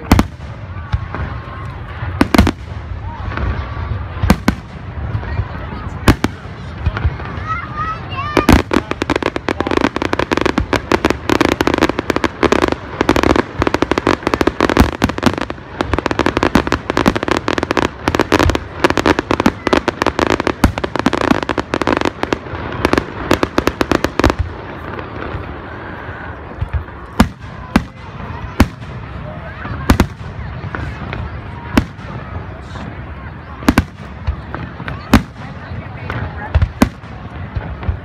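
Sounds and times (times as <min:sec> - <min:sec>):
loud single firework bangs: 0:00.0 - 0:01.4.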